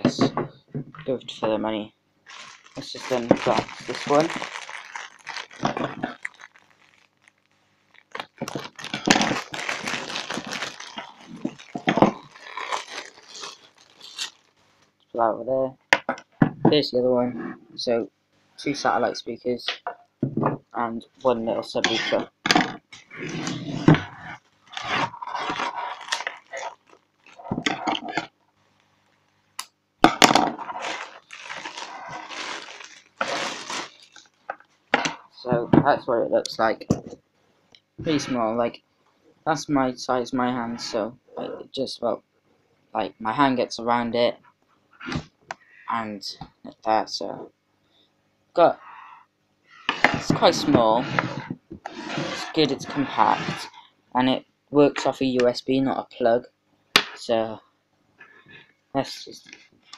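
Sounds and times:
plastic bag crinkling: 0:02.2 - 0:14.6, 0:23.2 - 0:28.3, 0:30.3 - 0:34.7.

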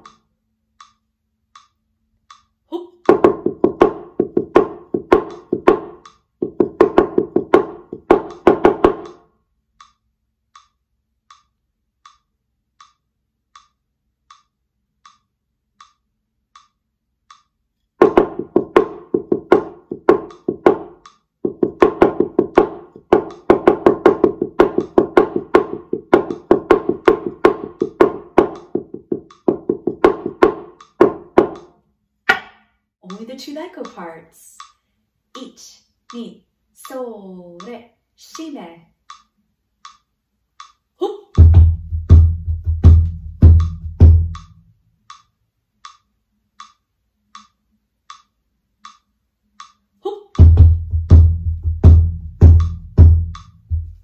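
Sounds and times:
drum struck with wooden sticks: 0:00.0 - 0:00.2, 0:02.3 - 0:10.0, 0:18.0 - 0:31.7, 0:32.3 - 0:34.0, 0:41.4 - 0:45.3, 0:50.4 - 0:54.0
metronome ticking: 0:00.0 - 0:31.7, 0:33.0 - 0:54.0.

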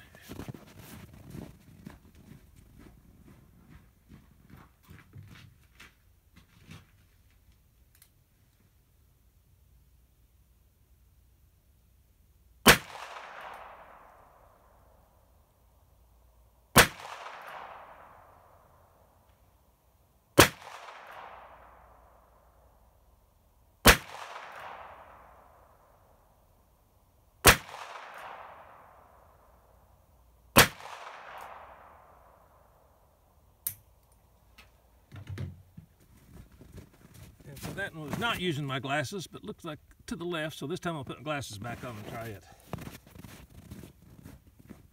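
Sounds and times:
revolver gunshots with echo: 0:12.6 - 0:14.6, 0:16.8 - 0:18.6, 0:20.4 - 0:22.0, 0:23.8 - 0:25.8, 0:27.4 - 0:29.2, 0:30.6 - 0:32.5.

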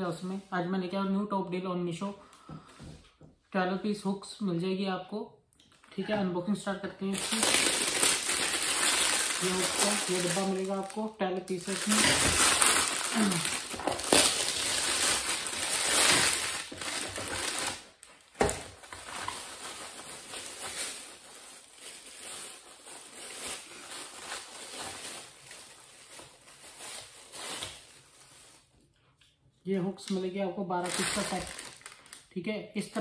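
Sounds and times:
plastic packaging crinkling: 0:07.1 - 0:28.9, 0:30.8 - 0:32.3.

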